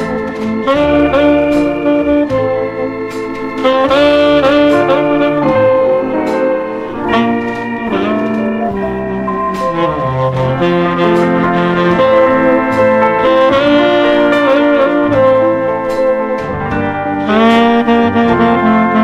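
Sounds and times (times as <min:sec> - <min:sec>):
brass section melody: 0:00.0 - 0:19.0
easy-listening dance-band music: 0:00.0 - 0:19.0.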